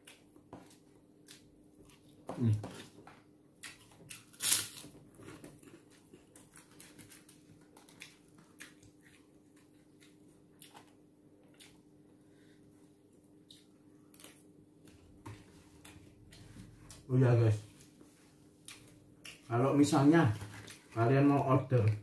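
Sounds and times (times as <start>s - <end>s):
soft chewing: 0.0s - 4.3s, 4.9s - 19.8s
faint steady hum: 0.0s - 22.0s
crunchy bite: 3.6s - 4.9s.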